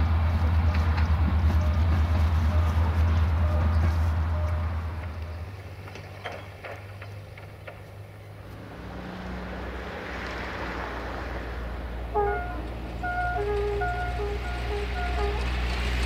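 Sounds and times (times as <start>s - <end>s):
diesel locomotive droning: 0.0s - 16.0s
multi-tone locomotive horn: 0.5s - 5.3s, 12.0s - 16.0s.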